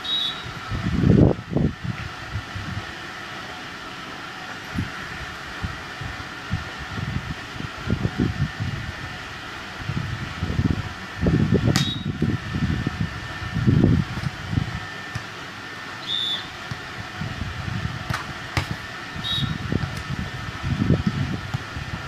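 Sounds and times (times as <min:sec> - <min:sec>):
wind buffeting microphone: 0:00.6 - 0:02.9, 0:09.8 - 0:14.9, 0:17.1 - 0:18.4, 0:19.3 - 0:22.0
volleyball being hit: 0:18.0 - 0:18.8.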